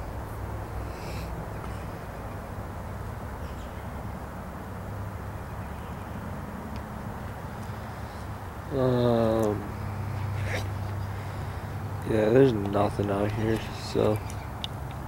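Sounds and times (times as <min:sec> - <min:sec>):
faint bird calls: 0:00.8 - 0:02.4.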